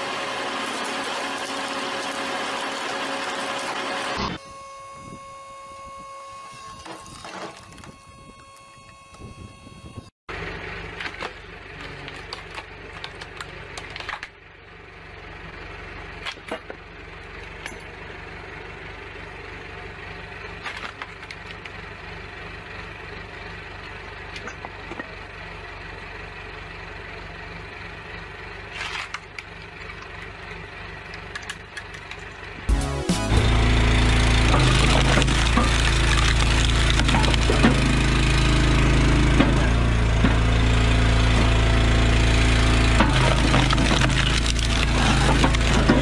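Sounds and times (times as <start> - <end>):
log splitter humming: 0.0 - 14.6, 28.6 - 46.0
wood cracking: 11.0 - 14.3, 34.0 - 38.4, 42.9 - 46.0.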